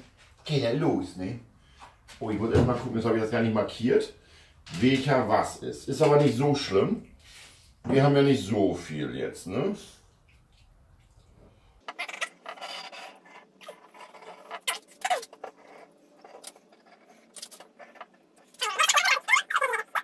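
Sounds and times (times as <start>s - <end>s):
glue bottle scraping and rubbing: 11.9s - 20.0s
glue bottle sputtering squirts: 11.9s - 20.0s.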